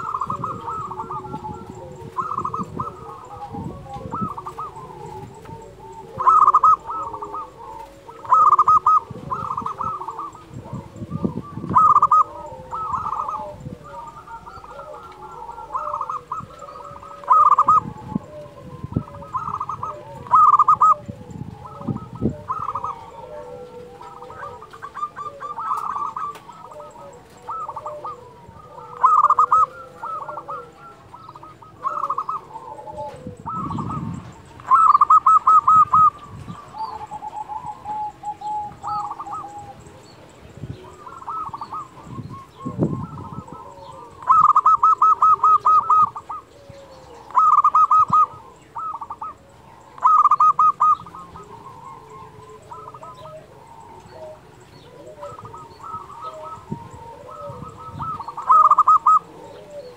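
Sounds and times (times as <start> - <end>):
dove cooing: 0.0 - 59.9.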